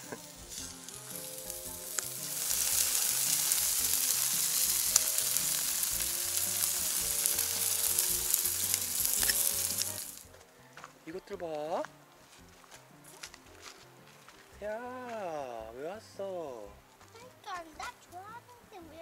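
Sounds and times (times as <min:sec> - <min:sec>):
meat sizzling on grill: 0:00.0 - 0:10.3.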